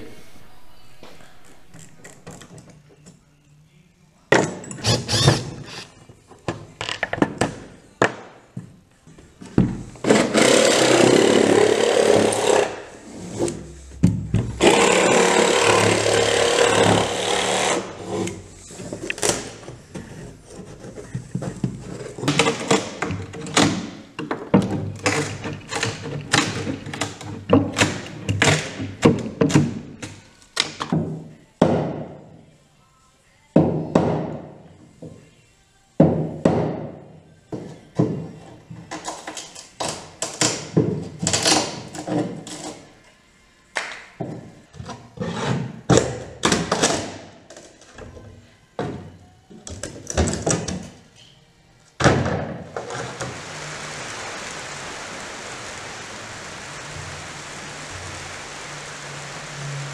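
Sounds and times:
jigsaw cutting plywood: 4.8s - 5.8s, 10.1s - 12.7s, 14.6s - 17.8s.

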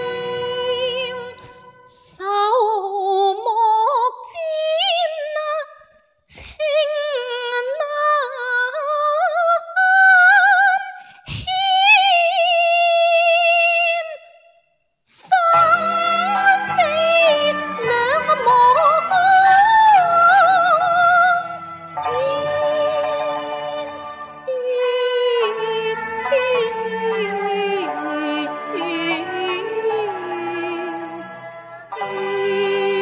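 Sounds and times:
unaccompanied opera singing: 15.1s - 31.3s, 31.9s - 33.0s
backing music: 15.4s - 33.0s.

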